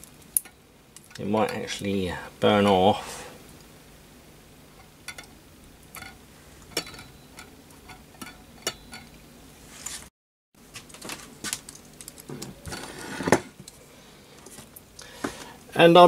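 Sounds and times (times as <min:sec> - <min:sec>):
small brass and glass parts clinking: 0:05.9 - 0:09.2.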